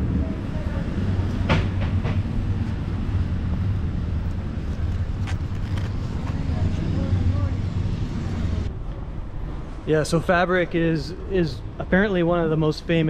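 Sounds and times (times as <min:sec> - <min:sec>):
city street rumble: 0:00.0 - 0:13.0.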